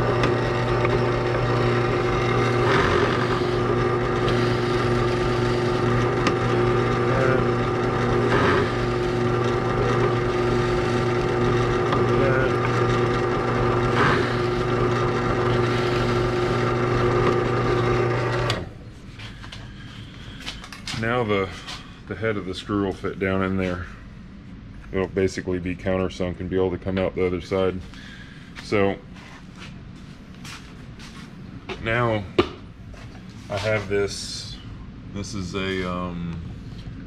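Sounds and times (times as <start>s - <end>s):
drill bit cutting: 0.0s - 18.7s
drill press running: 0.0s - 20.9s.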